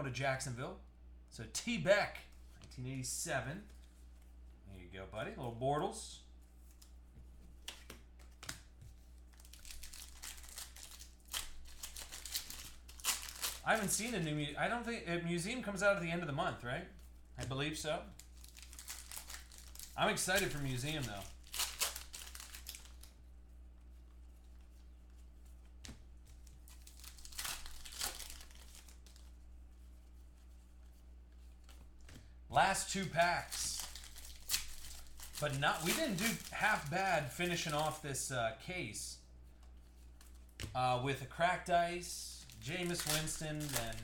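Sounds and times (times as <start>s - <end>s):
low steady hum: 0.0s - 44.0s
card pack wrappers crinkling: 9.2s - 14.4s, 18.1s - 23.2s, 26.2s - 29.3s, 32.6s - 38.1s, 42.4s - 44.0s.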